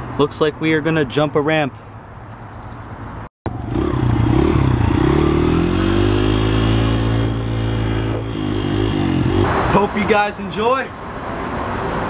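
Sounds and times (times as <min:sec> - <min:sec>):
dirt bike engine running: 0:03.5 - 0:09.6.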